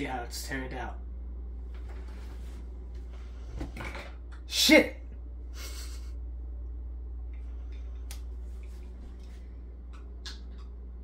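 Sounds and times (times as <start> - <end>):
steady low hum: 0.0 - 11.0
soft rustle: 1.7 - 3.5.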